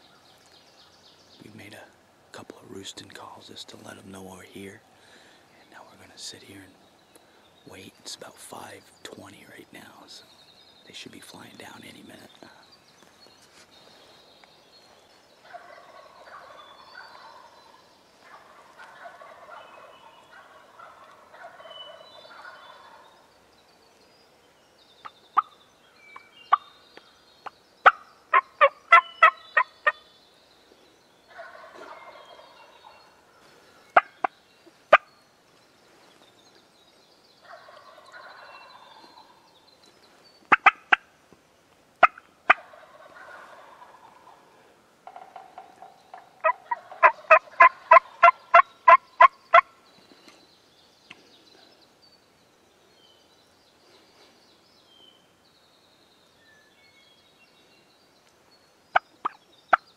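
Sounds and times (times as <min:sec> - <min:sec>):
faint songbird chirps: 0:00.0 - 0:59.9
turkeys gobbling: 0:15.4 - 0:23.2, 0:27.8 - 0:30.0, 0:31.3 - 0:34.3, 0:34.9 - 0:35.1, 0:37.5 - 0:39.4, 0:40.5 - 0:41.1, 0:42.0 - 0:49.7, 0:58.9 - 0:59.4.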